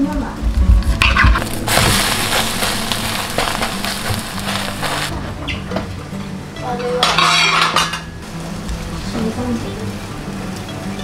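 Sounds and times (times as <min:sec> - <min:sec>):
soft background music: 0:00.0 - 0:11.0
food sizzling in a frying pan: 0:01.1 - 0:05.1, 0:07.0 - 0:11.0.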